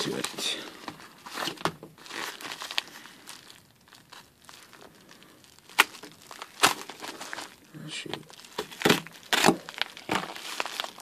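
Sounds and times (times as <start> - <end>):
paper mailers crinkling: 0.0 - 11.0.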